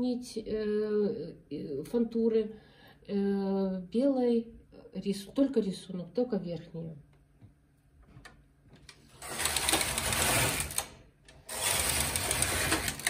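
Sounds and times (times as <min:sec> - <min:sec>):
knitting machine carriage swishing: 0:09.1 - 0:13.0.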